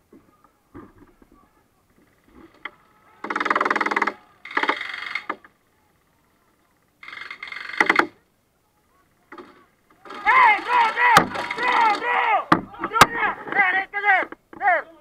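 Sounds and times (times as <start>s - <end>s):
airsoft rifle bursts: 2.4s - 5.6s, 7.0s - 8.2s, 9.3s - 12.3s
sharp cracks: 2.4s - 5.6s, 7.0s - 8.2s, 9.3s - 13.2s.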